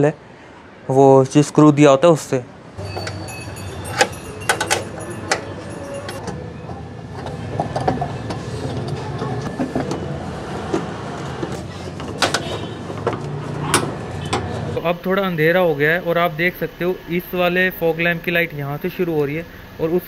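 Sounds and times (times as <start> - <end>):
hand tools clicking on bumper: 2.8 - 10.1.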